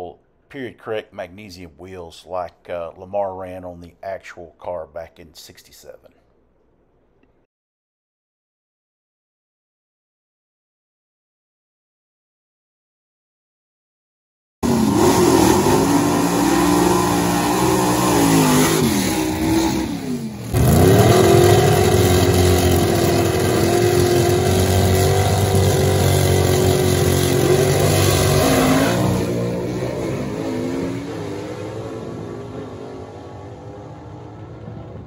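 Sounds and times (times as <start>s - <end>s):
drag car engine revving: 14.6s - 35.0s.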